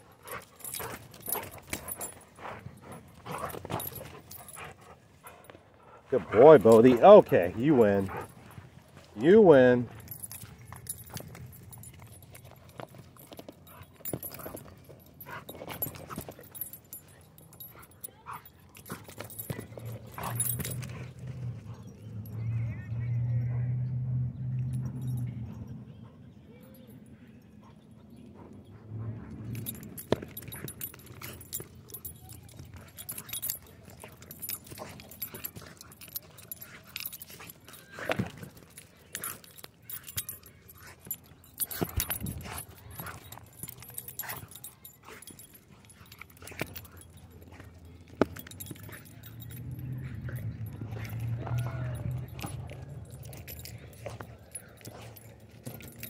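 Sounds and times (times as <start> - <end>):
paws scuffing on dirt: 0.0 - 22.0
dog panting: 0.0 - 22.2, 26.0 - 56.0
collar tags jingling: 0.0 - 56.0.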